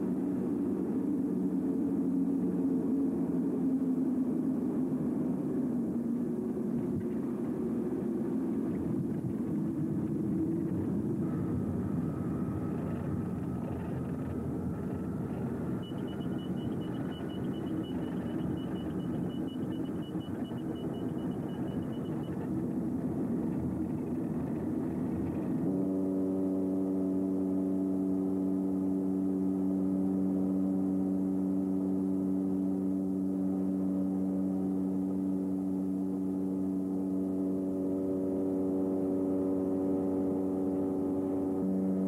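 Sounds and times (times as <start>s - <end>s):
aircraft cabin roar: 0.0s - 42.0s
drone of held tones: 9.5s - 24.6s, 25.6s - 42.0s
rapid high beeping: 15.7s - 22.4s.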